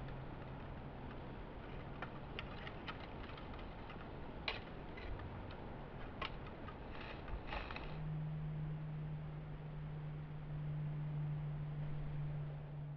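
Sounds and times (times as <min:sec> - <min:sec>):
faint clicks and ticks: 0:00.0 - 0:08.0.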